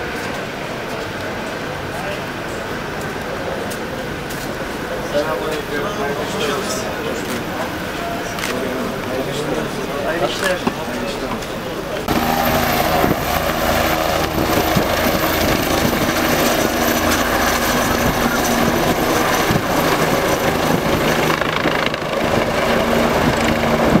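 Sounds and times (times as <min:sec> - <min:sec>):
helicopter rotor and engine: 0:12.0 - 0:24.0.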